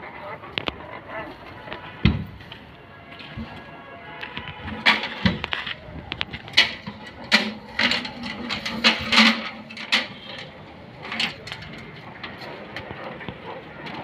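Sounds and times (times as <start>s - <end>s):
metal hand cart rattling on concrete: 0.2s - 14.0s
metal knocks from cart frame: 4.4s - 14.0s.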